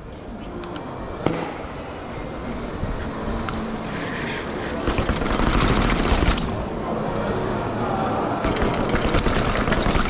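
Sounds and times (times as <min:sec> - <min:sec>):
bike rattling down stairs: 0:04.8 - 0:06.6, 0:08.4 - 0:10.0.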